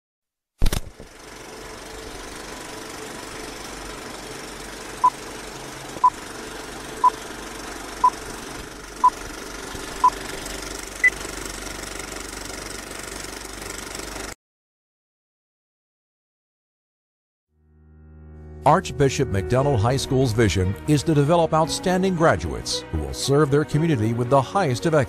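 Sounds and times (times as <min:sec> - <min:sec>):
film projector clattering: 0:00.6 - 0:14.4.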